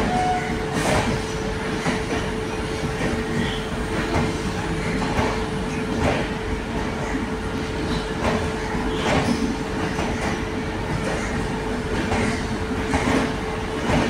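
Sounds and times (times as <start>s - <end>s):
train wheels knocking over rail joints: 12.0s - 14.0s.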